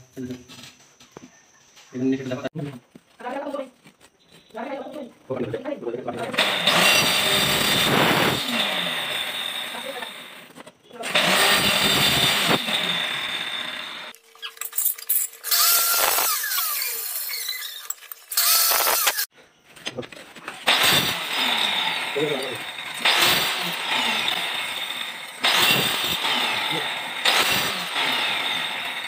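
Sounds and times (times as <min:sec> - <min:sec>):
electric marble cutter whining: 0:06.3 - 0:19.3, 0:20.7 - 0:29.0.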